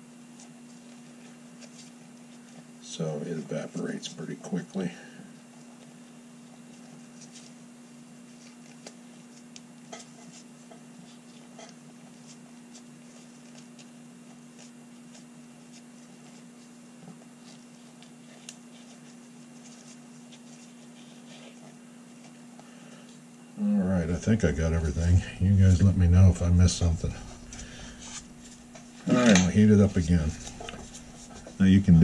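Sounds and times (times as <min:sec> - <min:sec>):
low hum: 0:23.5 - 0:32.0
cloth rubbing metal parts: 0:26.7 - 0:32.0.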